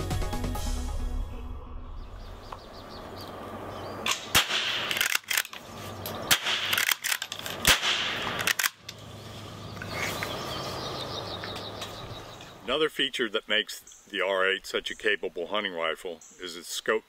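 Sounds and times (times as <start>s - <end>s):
rifle shots: 4.1s - 5.5s, 6.3s - 8.8s
rifle bolt clacking: 4.1s - 5.6s, 6.3s - 9.0s.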